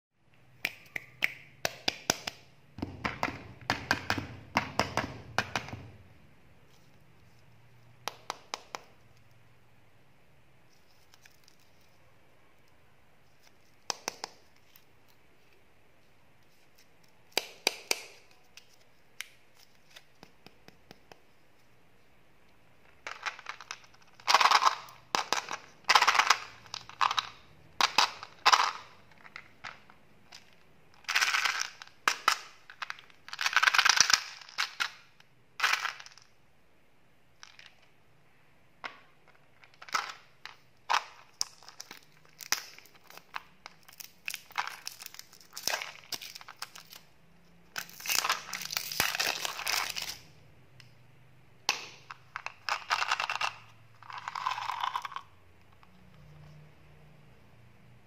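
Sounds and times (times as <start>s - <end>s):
plastic wrapper crinkling: 39.3s - 50.3s.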